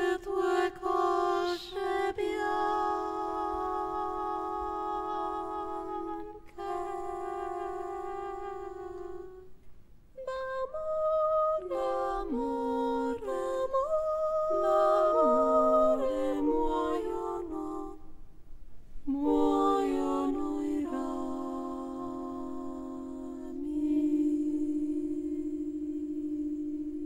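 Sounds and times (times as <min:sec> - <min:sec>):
chamber music chords: 0:11.5 - 0:18.1.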